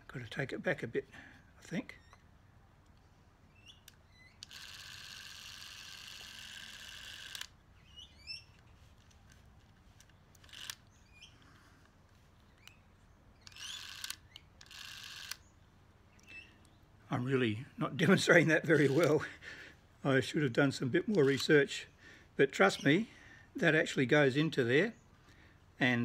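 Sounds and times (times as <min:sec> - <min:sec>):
small mechanical clicks: 0:03.6 - 0:07.6, 0:08.3 - 0:11.9, 0:13.4 - 0:15.5
clockwork camera whirring: 0:03.7 - 0:08.7, 0:10.0 - 0:11.2, 0:13.4 - 0:15.5, 0:18.6 - 0:19.2.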